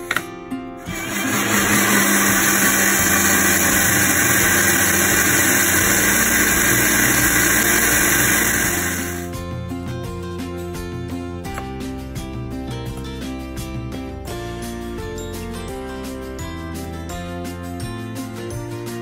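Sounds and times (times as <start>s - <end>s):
mixer grinder whirring: 0.8s - 9.3s.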